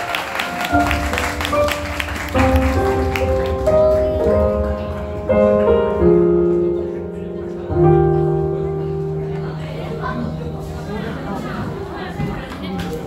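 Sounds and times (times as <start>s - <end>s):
people clapping: 0.0s - 5.3s
keyboard playing slow chords: 0.7s - 12.2s.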